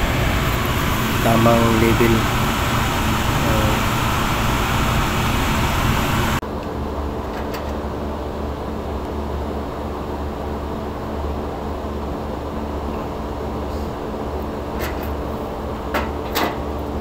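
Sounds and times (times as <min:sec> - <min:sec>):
machinery hiss and hum: 0:00.0 - 0:07.2.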